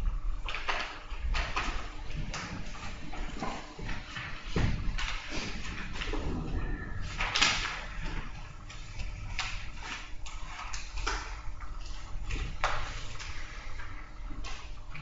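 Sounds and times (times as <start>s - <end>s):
papers rustling: 0.3s - 15.0s.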